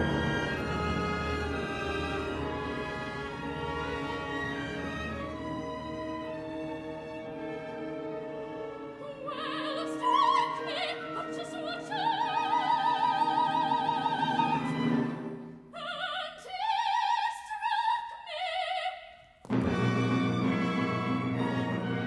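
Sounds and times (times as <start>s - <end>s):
orchestra playing: 0.0s - 15.6s, 19.4s - 22.0s
operatic soprano singing: 8.8s - 19.3s.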